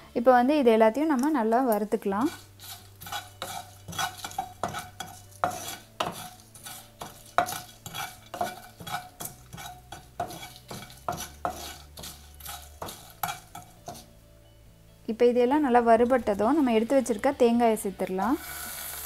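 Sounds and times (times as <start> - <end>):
wooden spatula scraping pan: 2.2 - 14.1.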